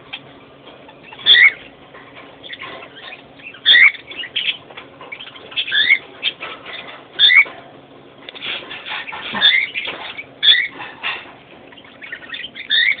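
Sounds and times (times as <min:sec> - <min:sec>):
soft bird chirps: 0:00.9 - 0:01.8, 0:02.4 - 0:07.5, 0:08.4 - 0:10.9, 0:11.7 - 0:13.0.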